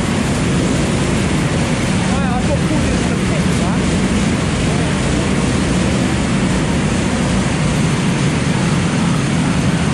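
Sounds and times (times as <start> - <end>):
wind noise on microphone: 0.0 - 9.9.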